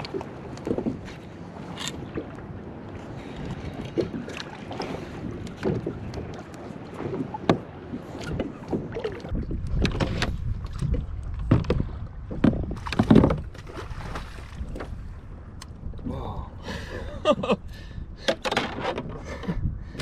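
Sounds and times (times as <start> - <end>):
water washing against hull: 0.0 - 20.0
wind rumbling on microphone: 0.0 - 20.0
gear knocking on boat: 5.3 - 13.9.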